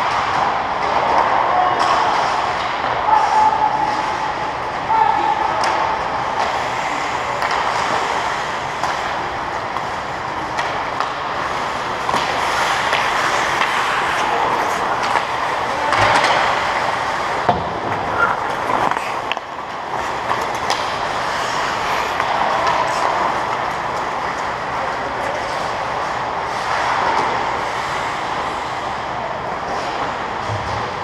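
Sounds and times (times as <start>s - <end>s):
hockey sticks and puck clacking: 0.0s - 4.9s, 5.5s - 31.0s
skates scraping on ice: 5.6s - 31.0s.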